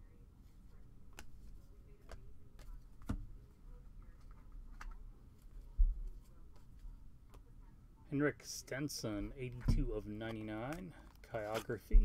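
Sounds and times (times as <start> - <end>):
cards flipping with light clicks: 1.0 - 3.2, 4.2 - 7.5, 10.2 - 11.9.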